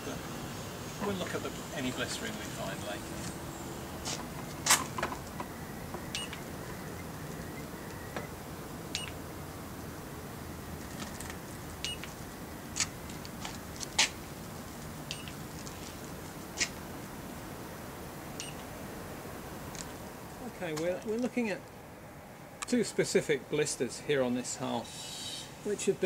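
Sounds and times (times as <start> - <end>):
sharp sensor clicks: 4.7 - 8.3, 8.9 - 9.2, 11.8 - 12.2, 15.0 - 15.4, 18.3 - 18.7
short electronic beeps: 6.1 - 7.7, 9.0 - 9.2, 15.1 - 15.3, 18.4 - 18.6.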